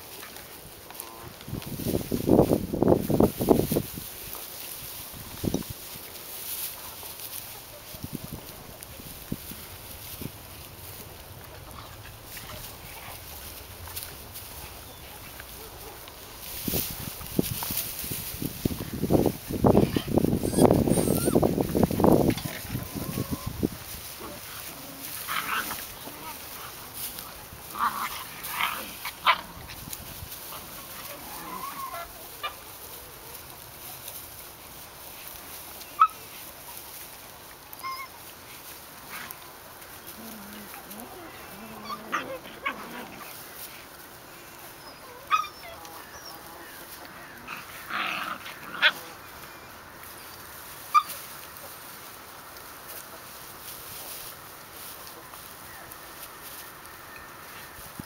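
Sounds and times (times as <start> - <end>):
puppies squeaking and yipping: 19.8 - 21.7, 22.4 - 23.6, 30.8 - 32.7, 35.8 - 36.3, 37.8 - 38.3, 41.8 - 42.8, 44.6 - 47.0, 50.1 - 51.3.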